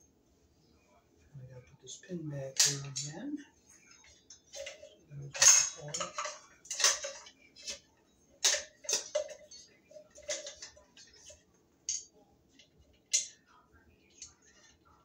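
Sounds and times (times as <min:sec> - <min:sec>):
metal and plastic parts clinking: 0:04.5 - 0:07.8, 0:08.4 - 0:13.4.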